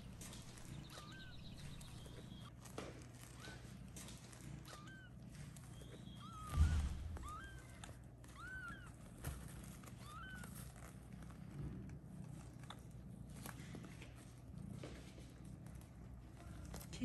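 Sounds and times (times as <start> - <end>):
kitten mewing: 4.6 - 9.4
dull thump: 6.5 - 7.2.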